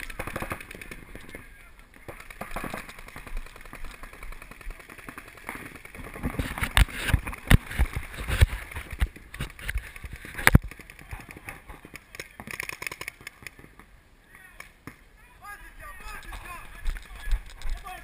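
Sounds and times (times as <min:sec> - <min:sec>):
paintball markers firing: 0:00.0 - 0:01.4, 0:02.0 - 0:13.7.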